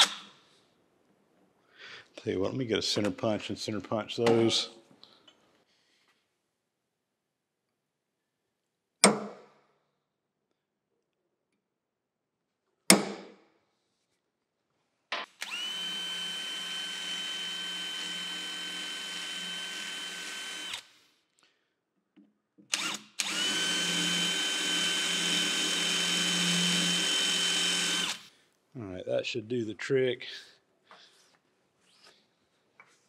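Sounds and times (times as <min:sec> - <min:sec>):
electric drill whining: 0:15.4 - 0:21.0, 0:22.7 - 0:28.3.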